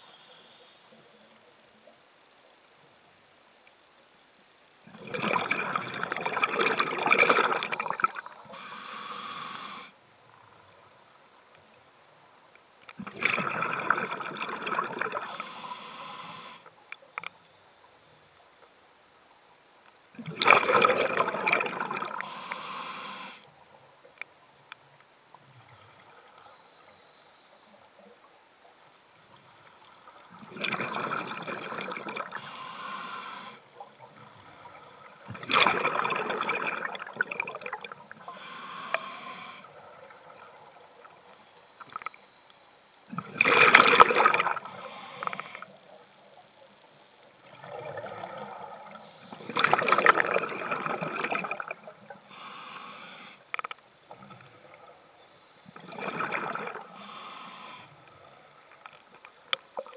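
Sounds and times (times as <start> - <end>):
exhaled bubbles underwater: 4.9 - 8.6, 13.0 - 15.6, 20.2 - 22.7, 30.2 - 32.8, 33.8 - 42.1, 43.1 - 52.3, 55.6 - 57.0
diver inhaling through regulator: 7.4 - 10.0, 14.2 - 16.7, 21.9 - 23.5, 30.7 - 33.8, 34.6 - 39.8, 43.4 - 45.8, 48.8 - 53.7, 55.9 - 58.2.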